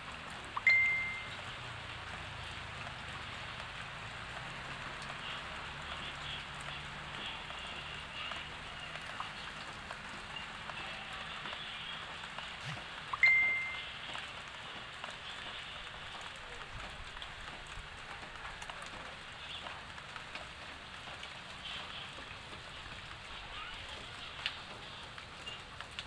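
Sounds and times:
rain falling on leaves: 0:00.0 - 0:26.0
bright high ding: 0:00.6 - 0:01.3, 0:13.2 - 0:13.9.

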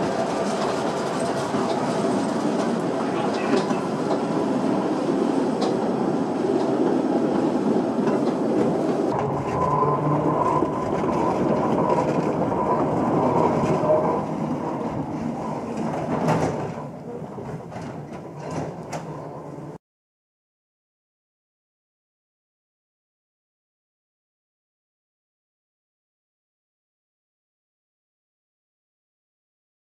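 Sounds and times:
train wheels rumbling on track: 0:00.0 - 0:19.8.

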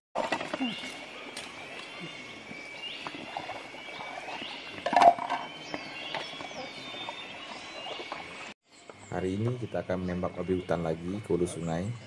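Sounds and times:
plates clinking: 0:04.8 - 0:06.8.

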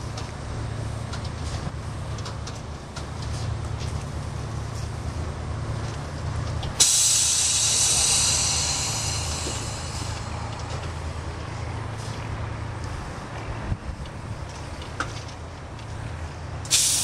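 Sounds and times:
tram humming: 0:00.0 - 0:17.0
compressed air hiss: 0:06.8 - 0:11.3, 0:16.7 - 0:17.0.

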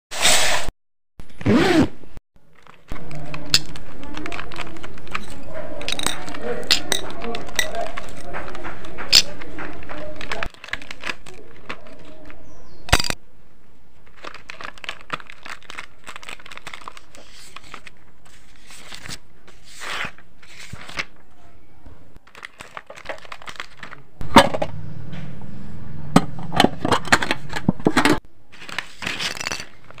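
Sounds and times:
plastic packaging crinkling: 0:02.4 - 0:12.5, 0:13.9 - 0:21.1, 0:22.2 - 0:24.1, 0:28.5 - 0:30.0
pencils clicking and tapping: 0:02.4 - 0:13.2, 0:14.0 - 0:21.2, 0:22.2 - 0:24.0, 0:26.6 - 0:30.0.

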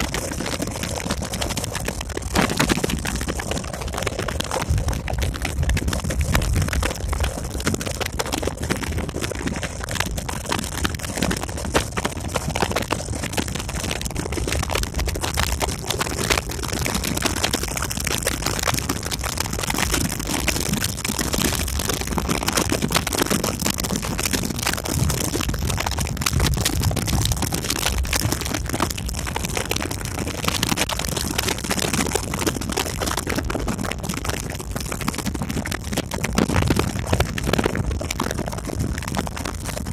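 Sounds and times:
wind buffeting microphone: 0:04.6 - 0:07.6.

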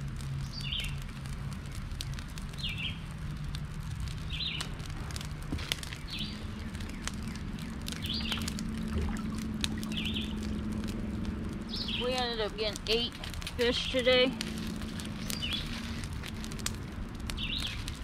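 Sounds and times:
sharp clicks and crackles: 0:00.0 - 0:18.0
bird chirping: 0:06.0 - 0:08.6, 0:09.8 - 0:10.4, 0:11.7 - 0:13.0, 0:15.2 - 0:15.8, 0:17.4 - 0:17.9.

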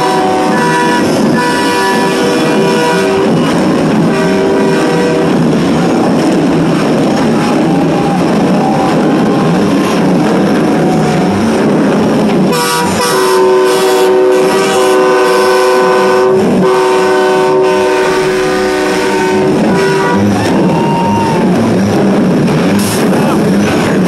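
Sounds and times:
truck air horns honking: 0:00.0 - 0:05.6, 0:12.4 - 0:21.1
multi-note horn chord: 0:12.5 - 0:20.3.

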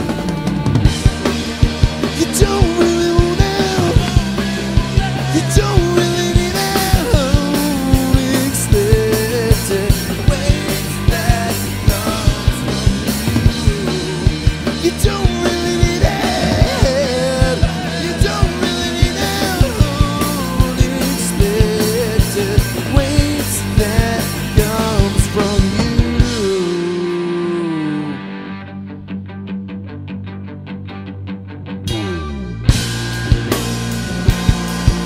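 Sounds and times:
drum kit: 0:00.0 - 0:28.4, 0:31.9 - 0:35.0
electric bass: 0:00.0 - 0:35.0
electric guitar: 0:00.0 - 0:35.0
man singing: 0:02.0 - 0:28.6.

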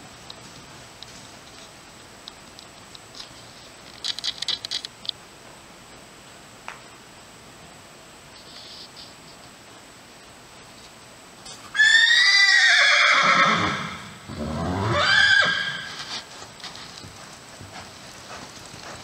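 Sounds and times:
hoofbeats on sand: 0:00.0 - 0:02.0, 0:14.4 - 0:19.0
horse whinnying: 0:11.8 - 0:16.1.

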